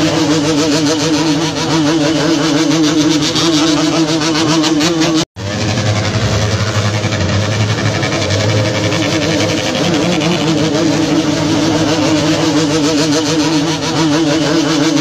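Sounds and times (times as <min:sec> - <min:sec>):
motorcycle engines idling: 0:00.0 - 0:15.0.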